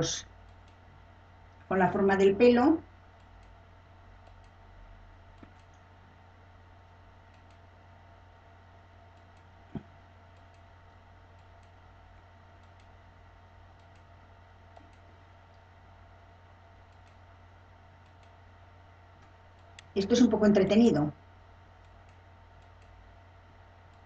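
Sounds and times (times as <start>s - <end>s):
low electrical hum: 0.0s - 24.0s
faint mouse clicks: 0.4s - 0.8s, 3.2s - 3.6s, 4.2s - 4.6s, 5.4s - 5.9s, 7.3s - 7.7s, 9.1s - 10.7s, 11.3s - 11.8s, 12.6s - 13.0s, 13.8s - 14.1s, 14.7s - 15.7s, 16.8s - 17.2s, 18.0s - 18.4s, 19.2s - 19.9s, 21.8s - 23.0s.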